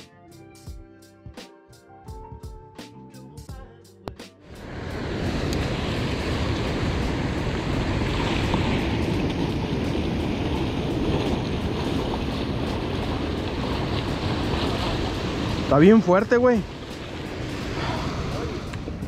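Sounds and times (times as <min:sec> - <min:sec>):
surf washing on beach: 0:04.5 - 0:19.0
wind buffeting microphone: 0:04.6 - 0:19.0.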